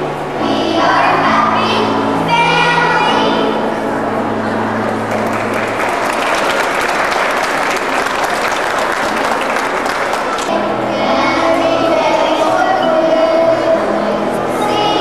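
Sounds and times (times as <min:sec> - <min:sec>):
music or singing: 0:00.0 - 0:04.8, 0:10.5 - 0:15.0
audience applauding: 0:04.9 - 0:10.5.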